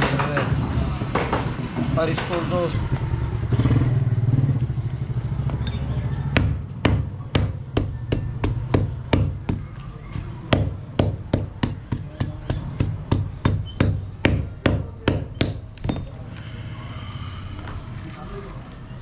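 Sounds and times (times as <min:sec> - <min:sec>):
hammer beating rubber sole: 0:06.3 - 0:16.1.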